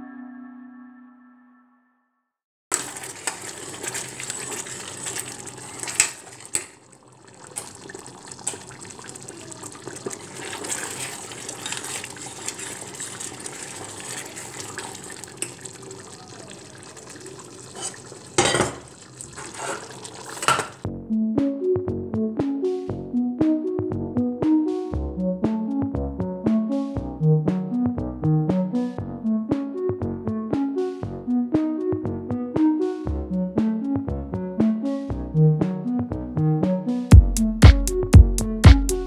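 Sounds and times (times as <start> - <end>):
pots and utensils clattering: 2.7 - 6.8, 9.7 - 15.8, 16.9 - 20.8.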